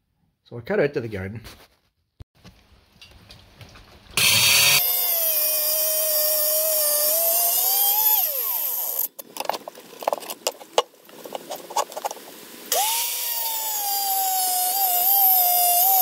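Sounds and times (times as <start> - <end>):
electric saw motor whining: 4.2 - 9.1, 12.7 - 16.0
saw winding down: 4.2 - 9.1, 12.7 - 16.0.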